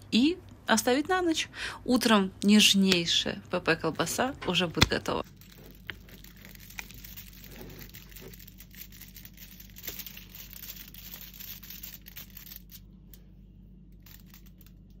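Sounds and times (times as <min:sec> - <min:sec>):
aluminium foil rustling: 0:04.5 - 0:13.0, 0:13.9 - 0:15.0
thin plastic crinkling and tearing: 0:04.8 - 0:13.2, 0:13.8 - 0:15.0.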